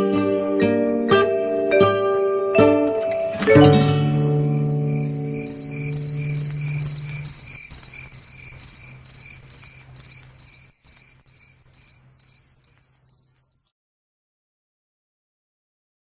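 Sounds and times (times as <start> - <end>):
cricket chirping: 0.4 - 2.1, 3.0 - 13.7.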